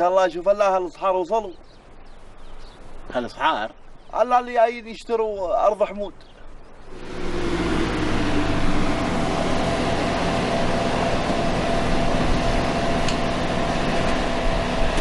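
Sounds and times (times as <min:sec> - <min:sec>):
car engine running: 0:06.9 - 0:15.0.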